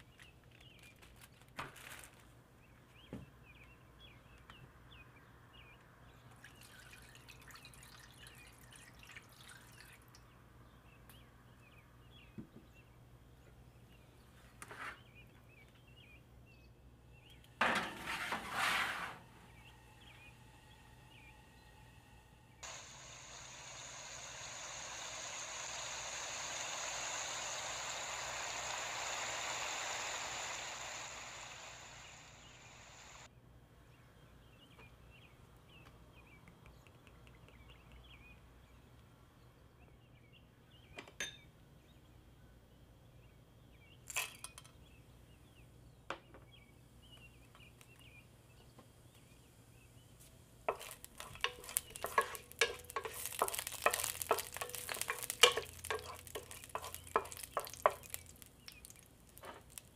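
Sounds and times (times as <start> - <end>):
metal pan clattering on rack: 17.6 - 18.5
steady rushing noise: 22.6 - 33.3.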